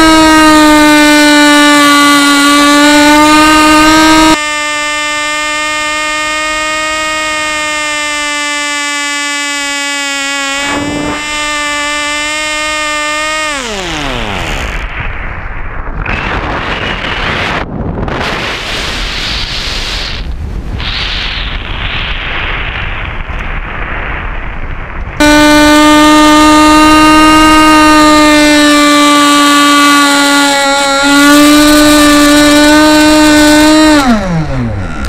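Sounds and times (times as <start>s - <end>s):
model motor and propeller buzzing: 0.0s - 15.0s, 25.2s - 35.0s
wind rushing over microphone: 10.6s - 28.6s.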